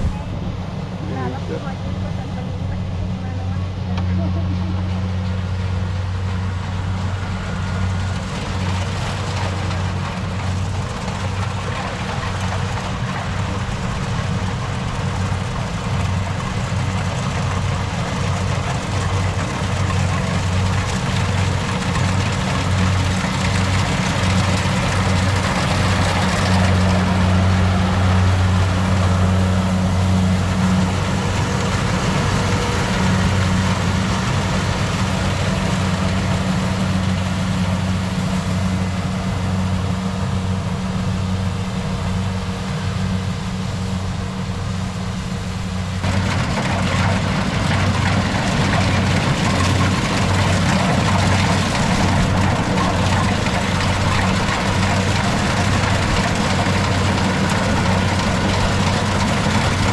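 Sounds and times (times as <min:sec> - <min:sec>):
farm machinery engine humming: 0:00.0 - 0:59.9.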